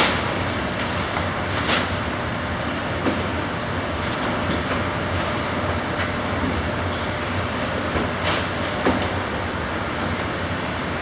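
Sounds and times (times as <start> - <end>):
machinery rumble and hum: 0.0 - 11.0.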